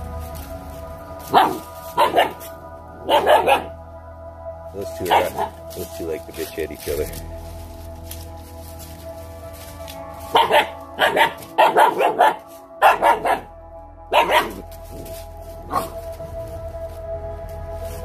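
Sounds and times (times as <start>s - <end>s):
background music: 0.0s - 18.0s
puppies barking: 1.3s - 3.8s, 4.8s - 6.0s, 10.2s - 13.5s, 14.1s - 16.1s.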